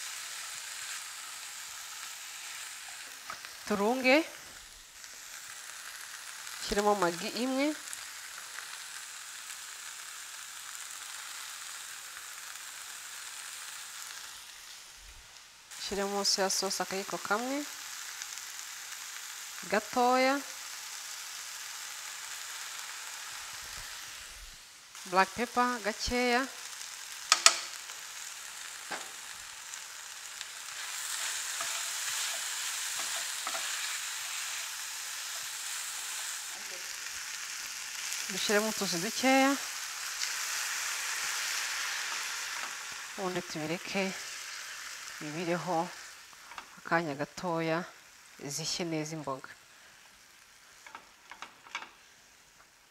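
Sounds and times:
vegetables sizzling in a skillet: 0.0s - 52.9s
spatula tapping a pan: 27.3s - 27.8s.

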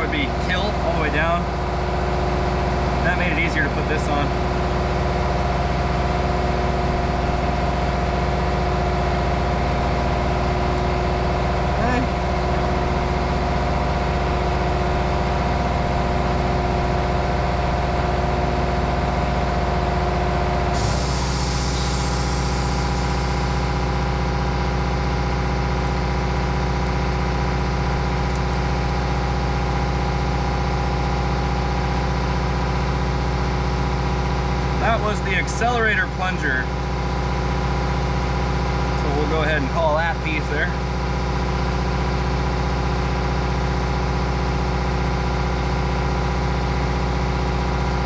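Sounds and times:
machine humming: 0.0s - 48.0s
hiss: 20.8s - 23.7s.

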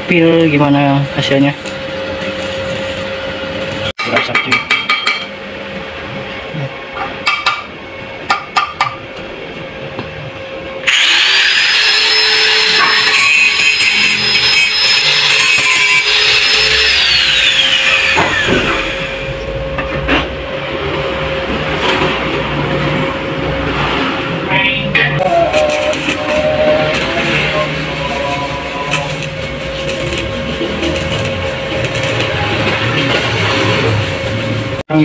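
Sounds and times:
angle grinder grinding steel: 10.8s - 19.5s, 25.2s - 34.7s.

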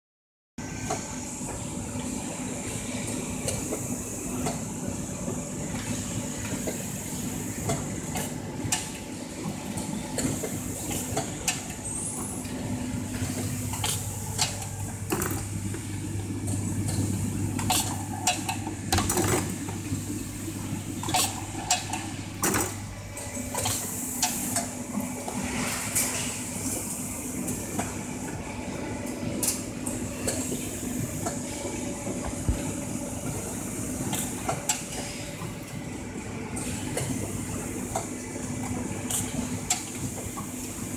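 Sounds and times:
steady machine hum: 0.6s - 40.9s
deeper hum: 13.6s - 23.7s.

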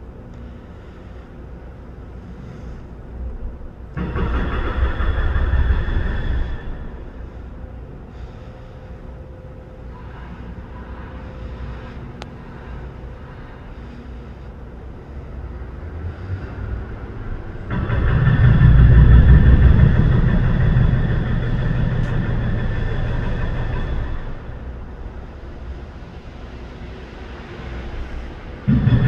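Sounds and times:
heavy engine running: 0.0s - 29.0s
loud deep engine roar: 15.4s - 25.3s, 27.7s - 29.0s.

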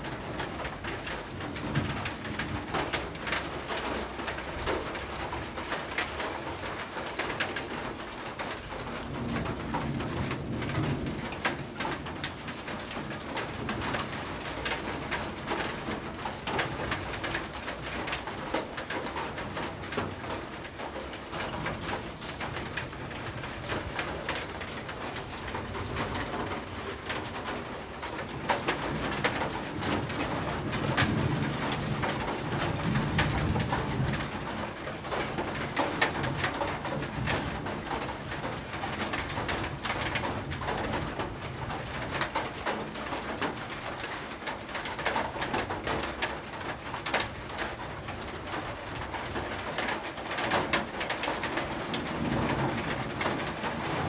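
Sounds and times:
rain pattering on leaves: 0.0s - 54.0s
thunder rumble: 21.3s - 36.4s, 51.6s - 54.0s.

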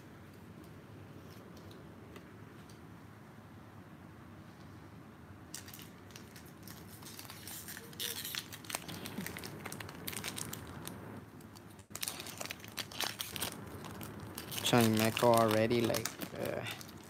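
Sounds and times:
foil wrapper crinkling and tearing: 5.5s - 17.0s.

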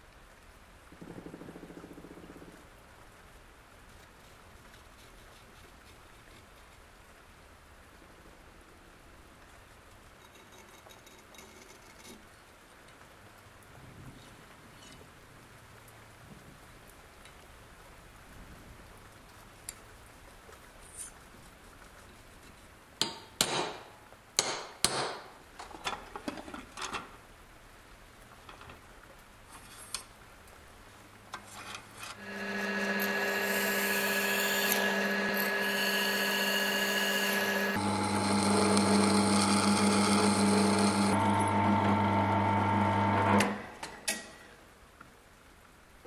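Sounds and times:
drill press boring metal: 32.1s - 43.6s.

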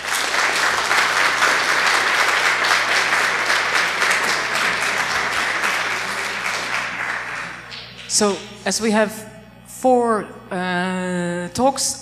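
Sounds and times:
audience applause: 0.0s - 7.8s.

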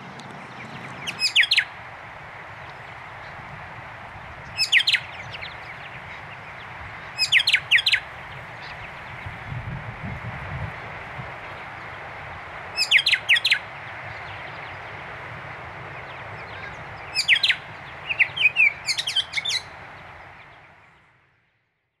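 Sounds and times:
bird chirping: 0.4s - 1.7s, 4.4s - 9.3s, 12.8s - 14.8s, 16.0s - 20.9s.

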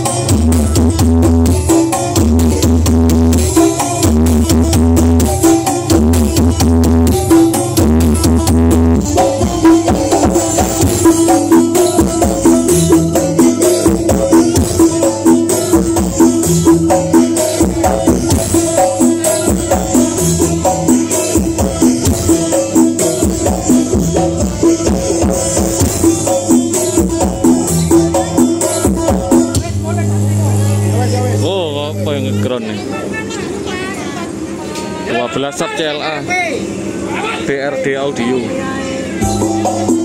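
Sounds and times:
loud music with heavy bass: 0.0s - 32.8s, 39.2s - 40.0s.

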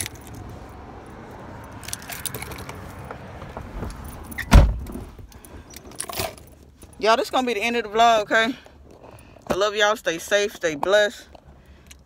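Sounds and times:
car door slamming: 3.6s - 5.2s.

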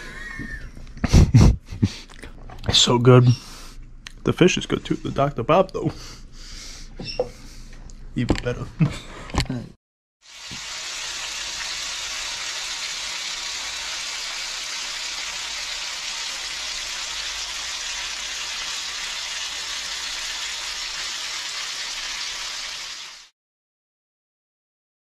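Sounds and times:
fish fillets sizzling in a pan: 10.2s - 23.3s.

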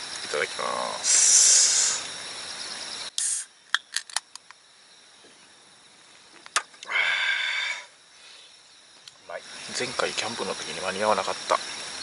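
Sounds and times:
loud breathy hiss: 0.6s - 3.6s, 6.8s - 8.7s.

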